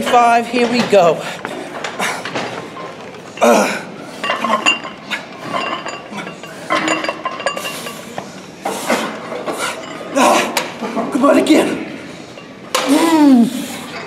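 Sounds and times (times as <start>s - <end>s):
weight plates clinking: 0.1s - 8.4s
metallic rings: 3.3s - 8.2s.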